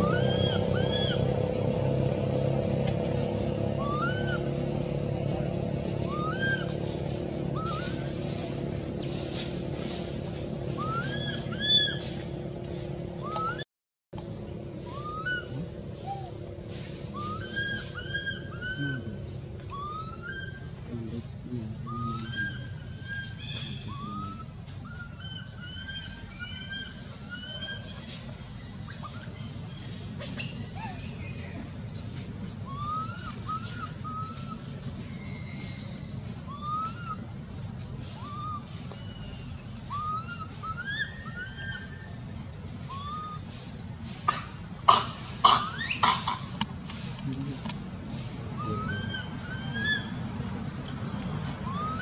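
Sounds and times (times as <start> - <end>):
infant monkey crying: 0.0 - 1.4, 3.7 - 4.6, 6.1 - 6.7, 10.8 - 12.0, 14.8 - 16.4, 17.1 - 20.8, 21.7 - 27.9, 29.0 - 31.8, 32.6 - 34.6, 36.4 - 37.3, 38.1 - 39.2, 39.8 - 42.2, 42.9 - 43.5, 48.6 - 51.0, 51.6 - 52.0
steady low hum: 0.0 - 13.6, 14.2 - 52.0.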